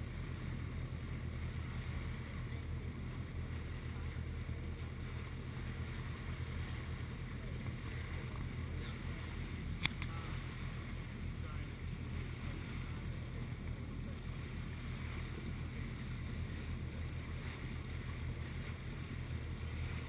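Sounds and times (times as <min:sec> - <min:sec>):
boat engine humming: 0:00.0 - 0:20.0
sharp click: 0:09.8 - 0:10.1.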